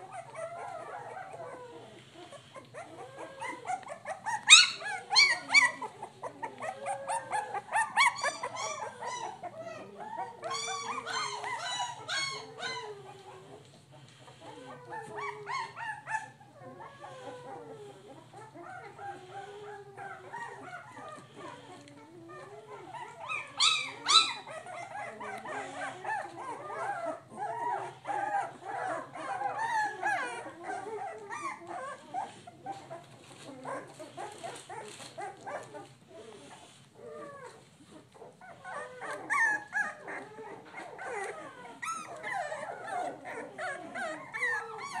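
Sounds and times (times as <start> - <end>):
puppies crying and whimpering: 0.0 - 45.0.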